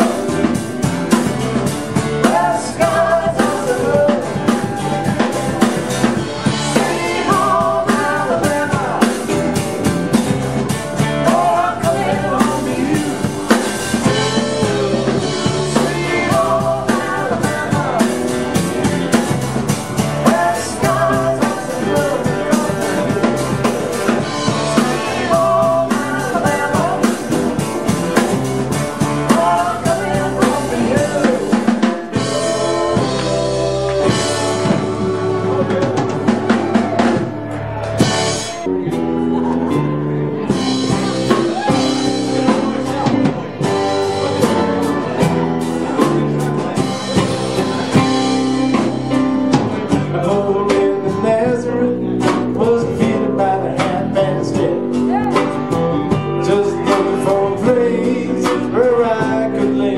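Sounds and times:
live rock band playing: 0.0s - 59.9s
person singing: 0.0s - 59.9s.

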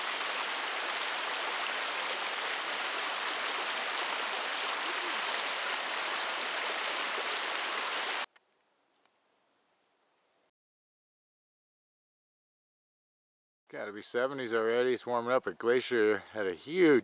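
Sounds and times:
creek running over rocks: 0.0s - 8.3s.

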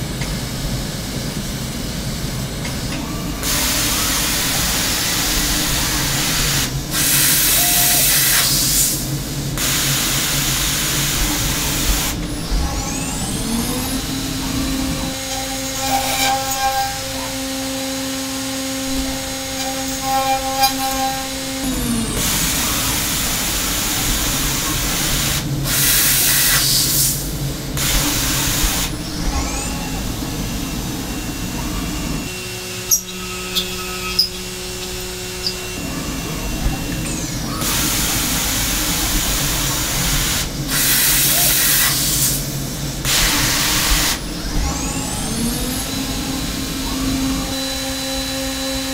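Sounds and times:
spindle whine: 8.8s - 25.7s, 27.2s - 40.7s, 42.4s - 48.9s.

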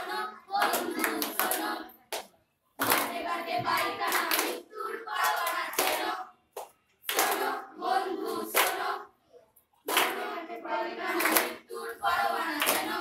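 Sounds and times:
voices singing: 0.0s - 2.2s, 2.8s - 6.4s, 7.1s - 13.0s
hand clapping: 0.6s - 7.6s, 8.5s - 8.9s, 9.9s - 10.4s, 11.1s - 11.7s, 12.4s - 13.0s.

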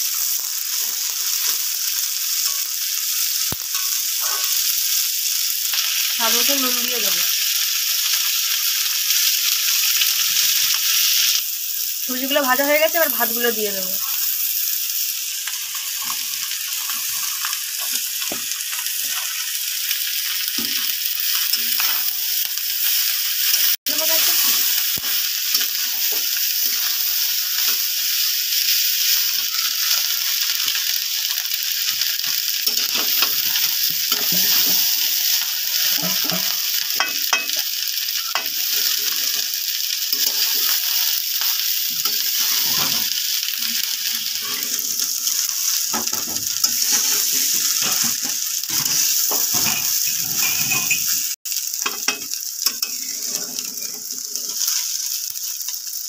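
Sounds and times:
rice sizzling in hot oil: 0.0s - 56.0s
metal spatula scraping pan: 42.0s - 43.1s, 43.7s - 48.1s, 48.7s - 51.2s, 52.7s - 55.0s.

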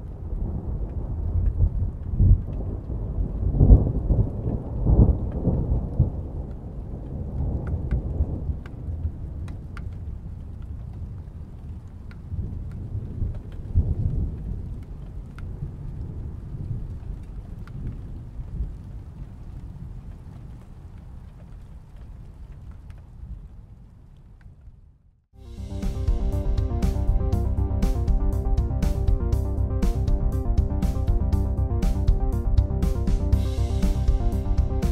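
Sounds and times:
distant thunder rumbling: 0.0s - 11.0s.

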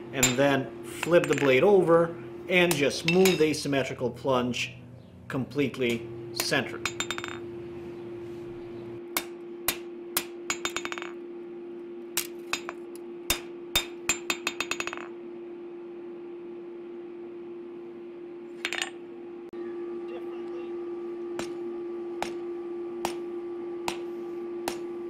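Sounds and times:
steady hum: 0.0s - 25.0s
hammer blows on anvil: 0.2s - 1.8s, 2.6s - 3.7s.

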